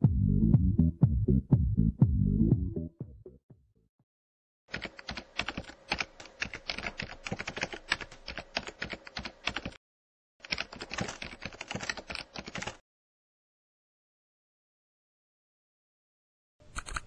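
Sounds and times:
computer keyboard typing: 4.7s - 9.8s, 10.4s - 12.8s, 16.7s - 17.0s.

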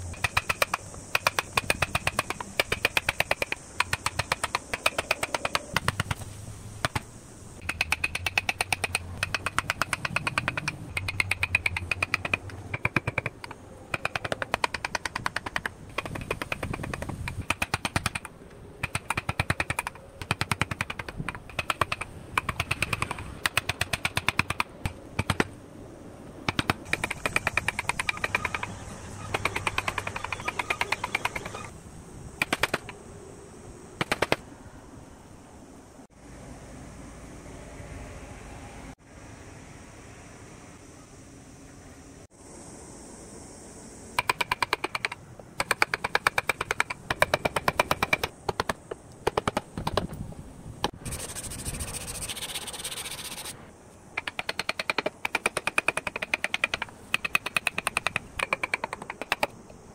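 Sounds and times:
chisel striking wood: 7.6s - 24.6s.

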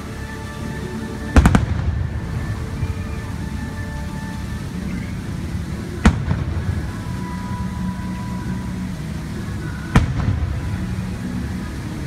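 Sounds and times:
show music: 0.0s - 12.0s
firework bang with echoing rumble: 1.4s - 2.2s, 6.0s - 6.6s.

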